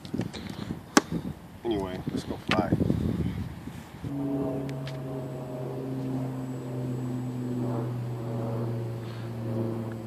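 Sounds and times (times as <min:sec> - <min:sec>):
electric motor and propeller drone: 0:03.9 - 0:10.0.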